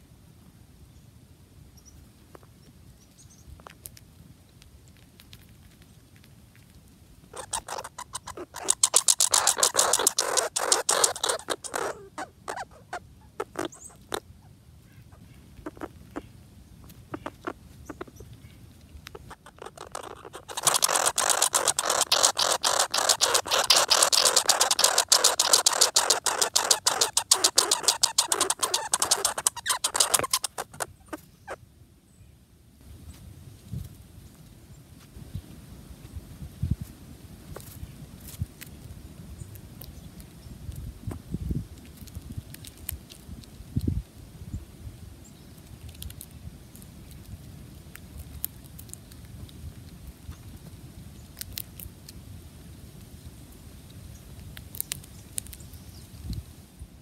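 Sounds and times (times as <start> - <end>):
squirrel crunching bird seed: 3.6 - 14.3, 15.5 - 31.6, 37.5 - 44.0, 45.4 - 56.4.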